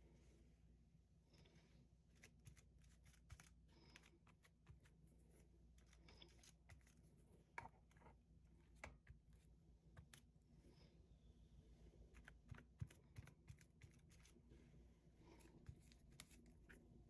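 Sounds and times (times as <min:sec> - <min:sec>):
glue brush tapping and rustling: 0:12.1 - 0:14.3.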